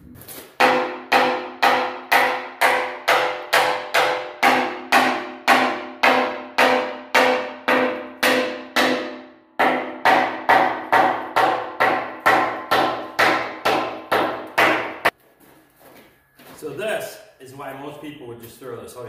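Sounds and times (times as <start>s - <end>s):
hammer striking ringing steel: 0.6s - 15.1s.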